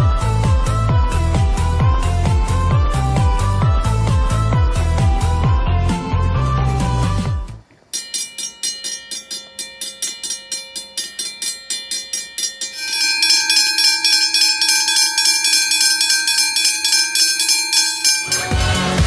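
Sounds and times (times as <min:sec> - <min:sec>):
railroad crossing bell ringing: 0:07.9 - 0:19.0.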